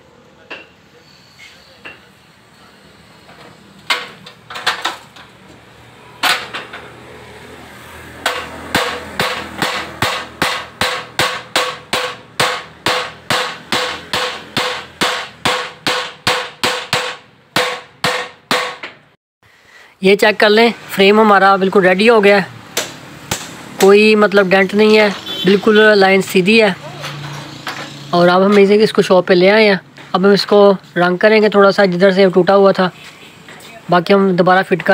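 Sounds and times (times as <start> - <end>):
hammer blows on metal: 8.2 - 18.9.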